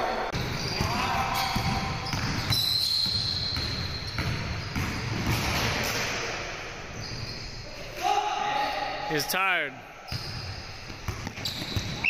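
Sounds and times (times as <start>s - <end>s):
basketball bouncing on wood floor: 10.1s - 12.0s.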